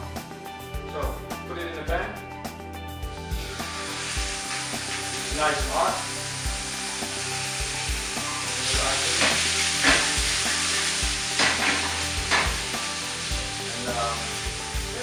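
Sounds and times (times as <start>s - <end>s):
steak sizzling in frying pan: 3.1s - 15.0s
oil crackling and spitting: 3.2s - 15.0s.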